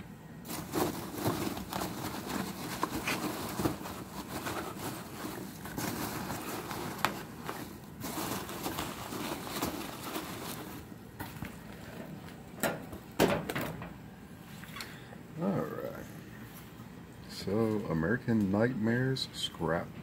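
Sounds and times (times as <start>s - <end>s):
foam packing peanuts rustling: 0.4s - 12.4s.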